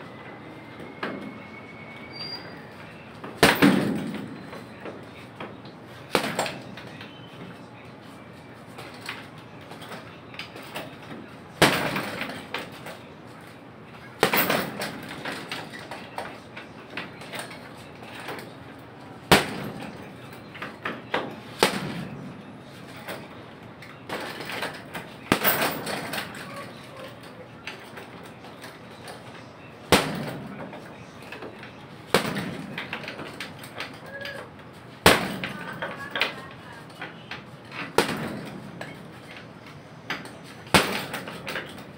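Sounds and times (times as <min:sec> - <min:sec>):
gloves punching heavy bag: 0:25.3 - 0:26.0, 0:29.9 - 0:30.4.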